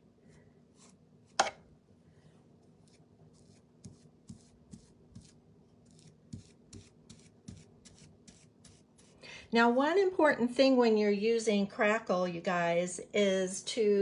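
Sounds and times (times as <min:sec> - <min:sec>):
paintbrush stroking over wood: 0:02.8 - 0:09.2.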